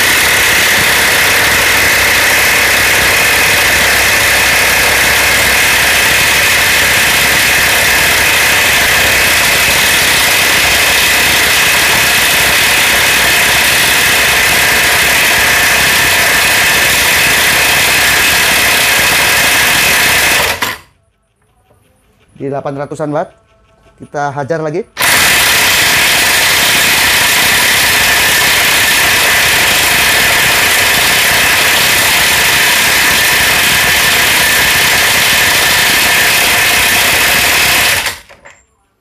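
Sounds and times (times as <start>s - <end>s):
electric impact wrench hammering: 0.0s - 20.9s, 25.0s - 38.6s.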